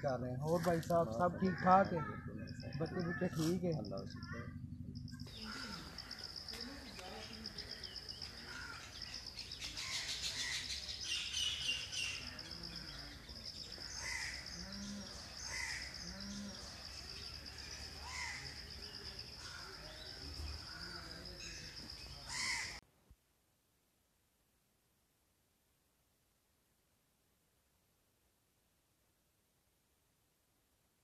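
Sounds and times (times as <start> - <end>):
crows cawing: 0.5 - 4.5, 5.3 - 6.6, 7.5 - 9.2, 9.8 - 10.7, 12.4 - 16.5, 17.5 - 18.6, 19.4 - 21.6, 22.2 - 22.8.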